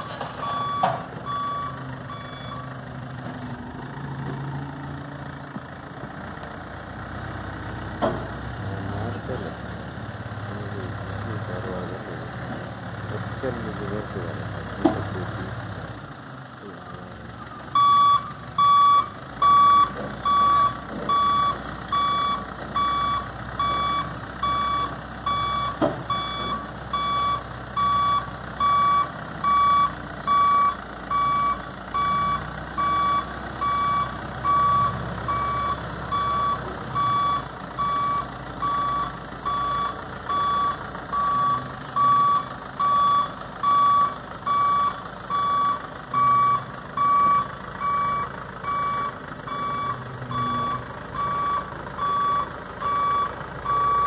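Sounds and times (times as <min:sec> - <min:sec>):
crane warning beeper: 0:00.0 - 0:02.8, 0:16.9 - 0:54.0
diesel engine running: 0:00.0 - 0:54.0.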